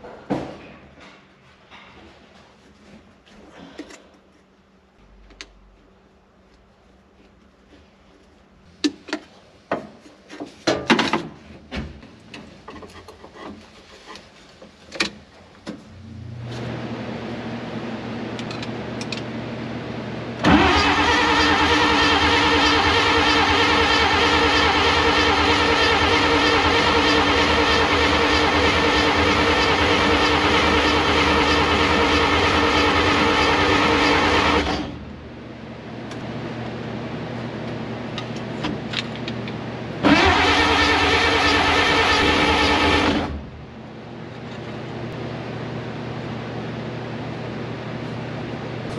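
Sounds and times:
motor running loud: 0:20.4 - 0:35.0, 0:40.0 - 0:43.5.

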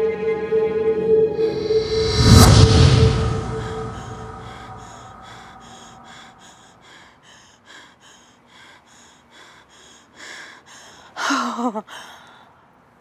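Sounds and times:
woman groaning: 0:11.2 - 0:12.0.

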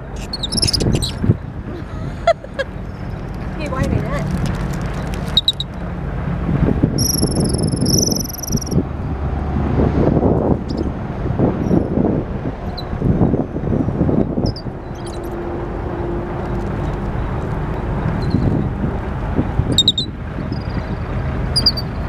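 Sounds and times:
wind buffeting microphone: 0:00.0 - 0:05.1, 0:06.2 - 0:22.0
low engine rumble: 0:00.0 - 0:22.0
high thin whistle: 0:07.0 - 0:08.8.

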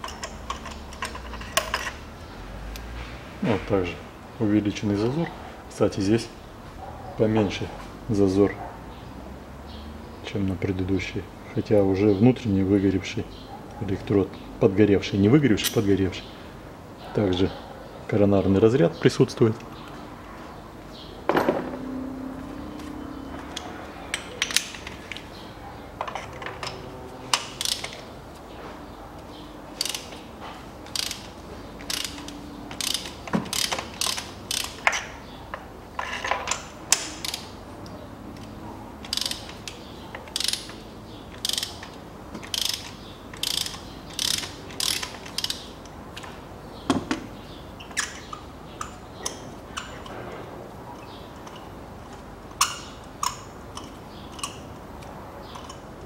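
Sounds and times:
ratchet wrench clicking: 0:26.6 - 0:28.0, 0:29.8 - 0:35.0, 0:36.5 - 0:37.5, 0:39.0 - 0:45.7, 0:52.6 - 0:54.7, 0:55.6 - 0:55.8.

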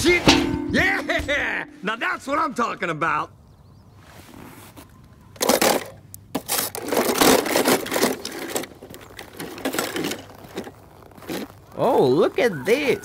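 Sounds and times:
crunching scraping handling noise: 0:04.0 - 0:12.8.

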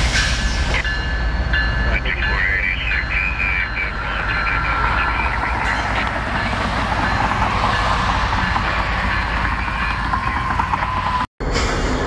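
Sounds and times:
locomotive diesel engine running: 0:01.8 - 0:11.3.

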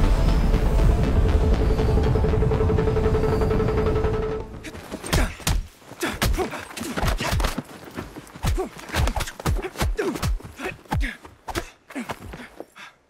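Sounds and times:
punches and blows: 0:04.9 - 0:12.5.

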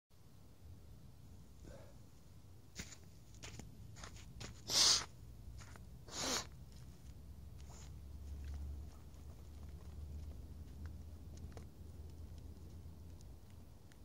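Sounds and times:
flip-flop footsteps on sand: 0:02.7 - 0:05.9, 0:06.6 - 0:13.2.

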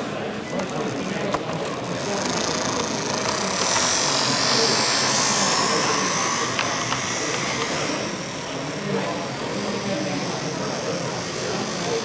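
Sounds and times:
model tram whirring on track: 0:00.0 - 0:12.0
murmur of voices: 0:00.0 - 0:12.0.

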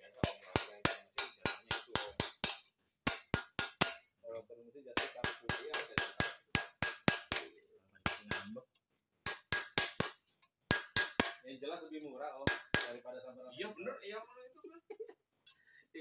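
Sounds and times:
hammer tapping on steel tool: 0:00.2 - 0:04.1, 0:05.0 - 0:08.6, 0:09.3 - 0:11.4, 0:12.5 - 0:13.0.

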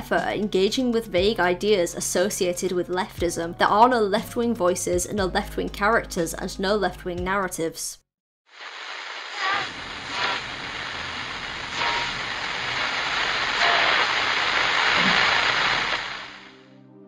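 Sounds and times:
static crackles: 0:08.5 - 0:16.6
television static hiss: 0:08.6 - 0:16.5.

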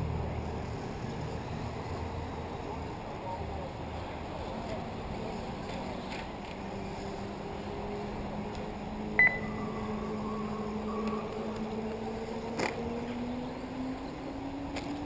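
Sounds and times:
steady hum: 0:09.2 - 0:10.7
short electronic beep: 0:09.2 - 0:11.2
faint rising tones: 0:09.2 - 0:12.5.

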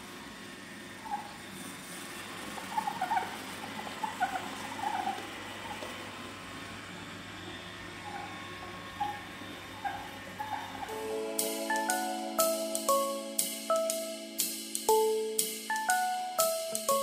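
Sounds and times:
robot vacuum humming: 0:00.0 - 0:12.6.

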